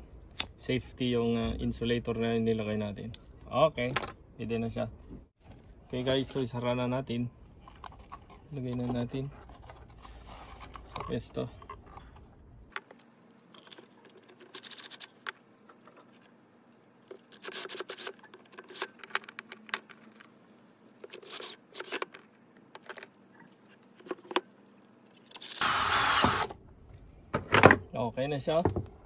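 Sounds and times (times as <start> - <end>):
cordless drill driving screws: 25.4 - 26.6.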